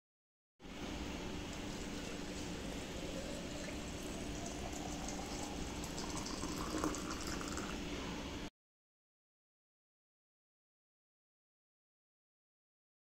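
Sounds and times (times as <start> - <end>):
water pouring into teapot: 1.5 - 7.8.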